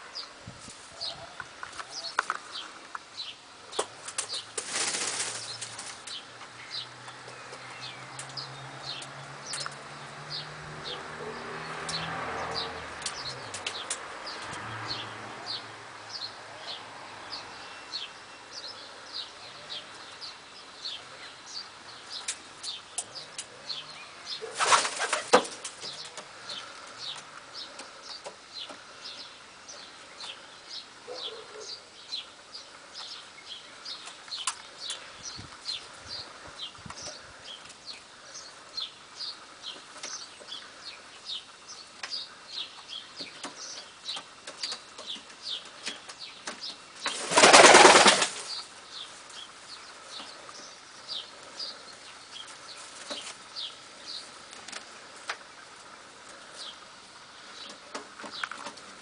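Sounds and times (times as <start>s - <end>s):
pigeon wings flapping: 4.1s - 6.0s, 24.5s - 25.8s, 47.1s - 48.5s.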